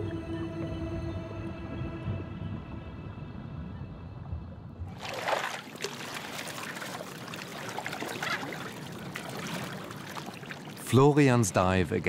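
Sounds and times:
low musical drone: 0.0s - 4.8s
water splashing and lapping: 4.9s - 11.3s.

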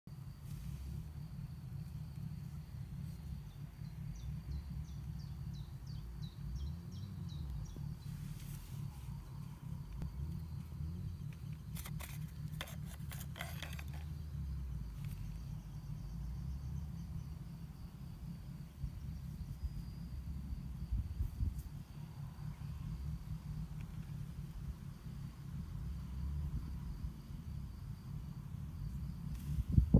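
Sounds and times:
high insect trill: 0.1s - 29.9s
low wind rumble: 0.1s - 29.9s
bird chirping: 2.5s - 20.4s.

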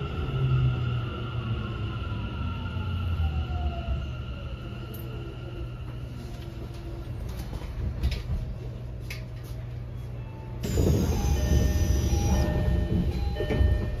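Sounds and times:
subway car low hum: 0.0s - 14.0s
train doors sliding open: 10.6s - 14.0s.

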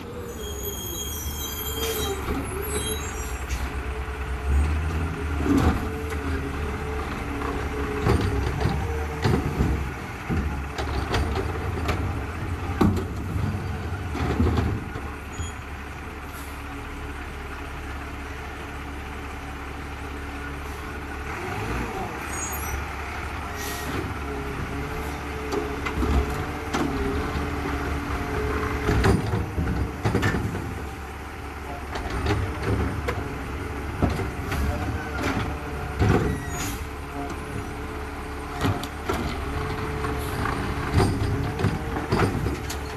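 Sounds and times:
garbage truck engine rumbling: 0.0s - 42.9s
trash clanking and banging: 4.7s - 15.3s, 23.9s - 31.0s, 31.9s - 37.8s, 38.4s - 42.9s.

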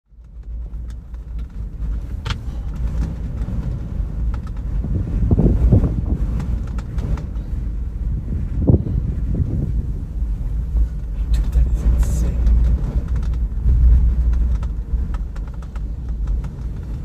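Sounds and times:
wind buffeting microphone: 0.2s - 17.0s.

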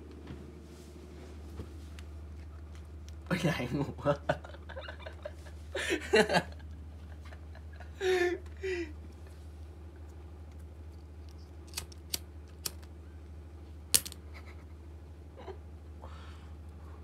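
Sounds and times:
low steady hum: 0.0s - 17.0s
sharp clicks: 11.7s - 12.9s.

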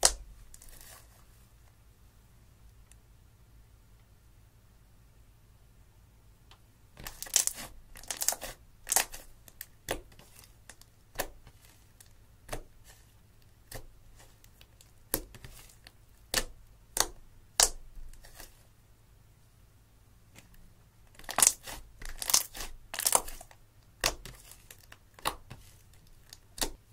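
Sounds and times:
sticky slime pops and crackles: 16.3s - 17.8s, 21.2s - 25.6s, 26.2s - 26.8s.

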